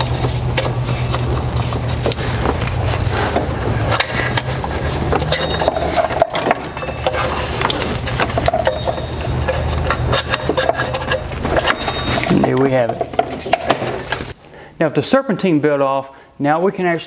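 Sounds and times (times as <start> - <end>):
rubber belt scraping pulley: 0.0 - 12.4
handling clicks and knocks: 0.0 - 14.4.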